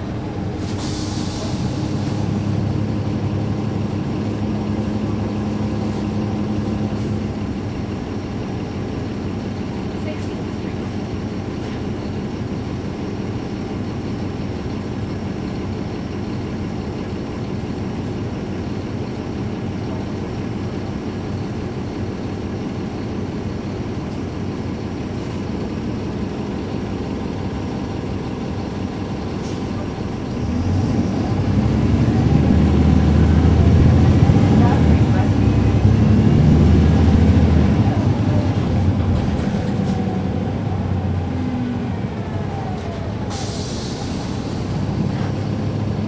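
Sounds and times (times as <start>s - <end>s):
bus diesel engine running: 0.0s - 46.0s.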